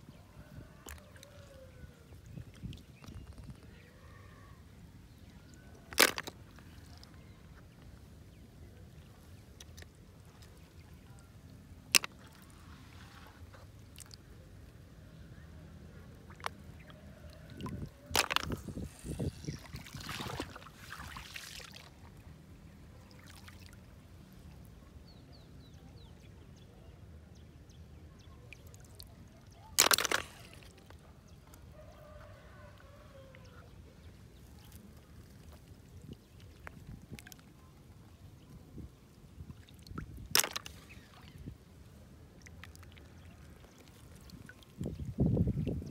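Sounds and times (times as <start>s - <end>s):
hands splashing in shallow water: 16.3s - 22.1s, 28.5s - 31.0s, 39.4s - 41.6s.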